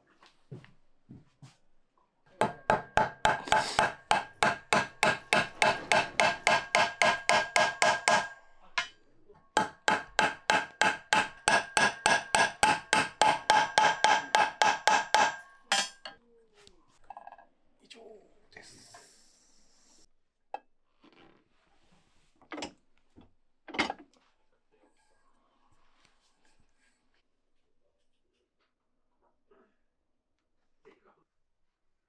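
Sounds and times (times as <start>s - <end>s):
hammer blows on metal pan: 2.4s - 9.0s, 9.6s - 16.2s.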